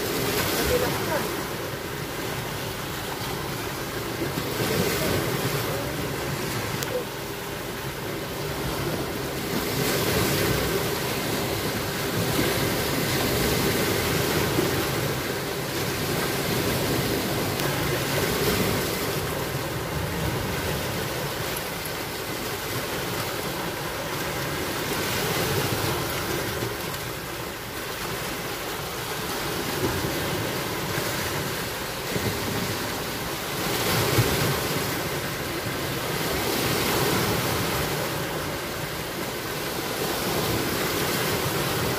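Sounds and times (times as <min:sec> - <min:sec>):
waves washing against rocks: 0:00.0 - 0:41.9.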